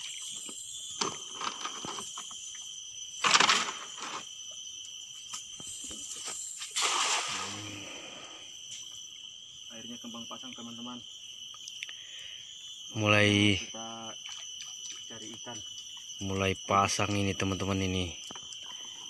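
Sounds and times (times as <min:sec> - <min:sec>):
insects droning: 0:00.0 - 0:19.0
net splashing into water: 0:06.7 - 0:07.8.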